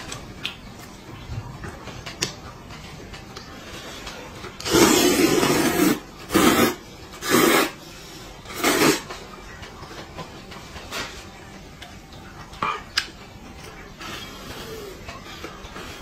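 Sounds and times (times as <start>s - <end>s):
man slurping noodles: 4.6s - 7.8s.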